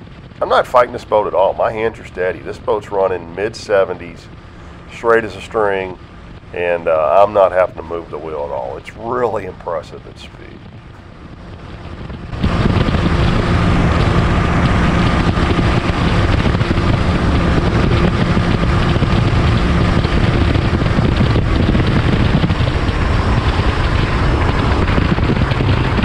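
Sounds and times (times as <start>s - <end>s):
outboard engine drone: 0.0s - 26.0s
wind rushing on microphone: 0.0s - 26.0s
water rushing: 0.4s - 26.0s.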